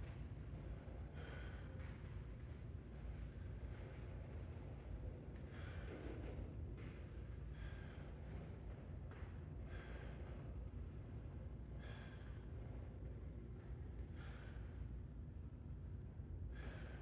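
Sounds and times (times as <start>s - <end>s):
steady low hum: 0.0s - 17.0s
man breathing heavily: 14.0s - 15.1s, 16.5s - 17.0s.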